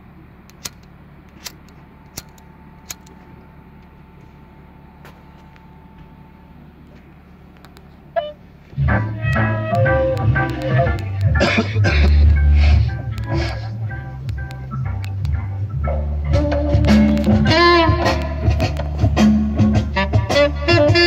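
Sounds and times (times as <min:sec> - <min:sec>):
low hum: 0:00.0 - 0:20.1
sharp clicks: 0:00.5 - 0:03.2, 0:13.1 - 0:13.6, 0:14.3 - 0:15.4
loud music with heavy bass: 0:08.8 - 0:21.0.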